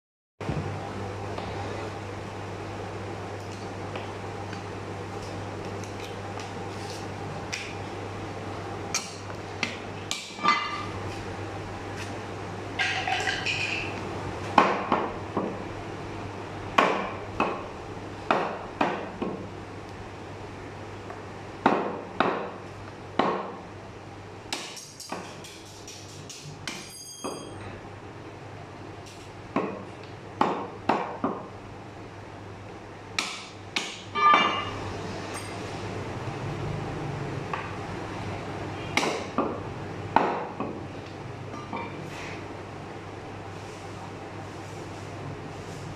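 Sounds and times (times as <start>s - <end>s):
steady low hum: 0.4s - 45.9s
ringing clink: 26.8s - 27.6s.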